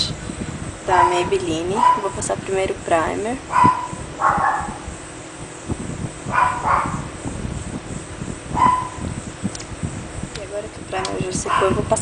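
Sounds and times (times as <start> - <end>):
dog yipping: 1.0 - 2.2, 3.5 - 4.8, 6.3 - 7.1, 8.6 - 9.1, 11.4 - 11.8.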